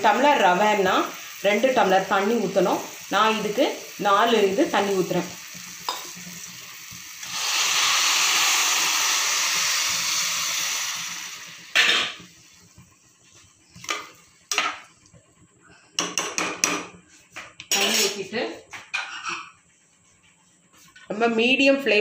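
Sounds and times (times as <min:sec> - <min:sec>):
water hissing in hot pan: 0:00.0 - 0:13.0.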